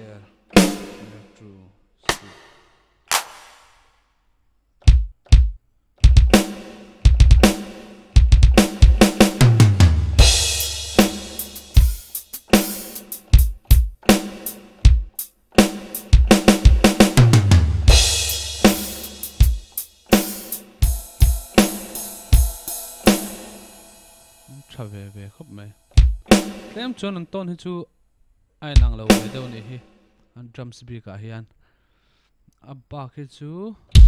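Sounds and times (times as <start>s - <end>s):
drum kit pattern: 0.0s - 4.0s, 4.8s - 27.2s, 28.7s - 29.9s
crash cymbal: 10.2s - 13.1s, 17.9s - 26.8s.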